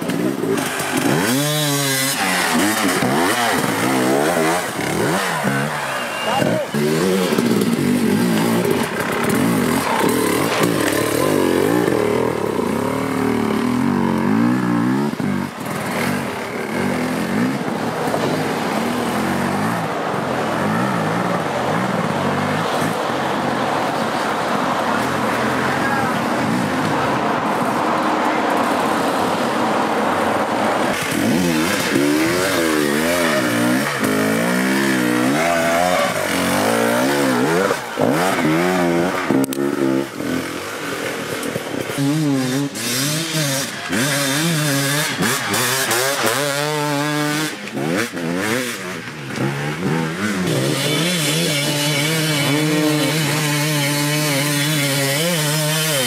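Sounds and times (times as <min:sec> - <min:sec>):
dirt bike engines revving: 0:00.0 - 0:56.0.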